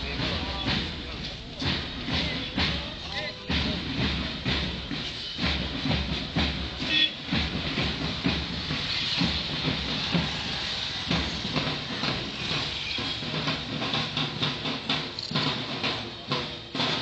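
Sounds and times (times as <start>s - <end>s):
outdoor noise hiss: 0.0s - 17.0s
marching feet on road: 0.1s - 17.0s.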